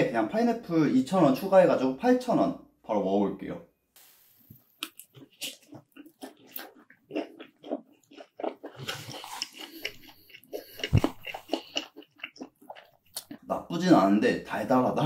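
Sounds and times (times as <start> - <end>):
person chewing pizza: 4.8 - 13.7.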